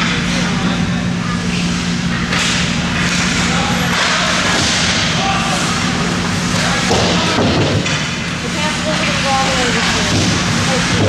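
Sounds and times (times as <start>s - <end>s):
low rink hum: 0.0s - 11.0s.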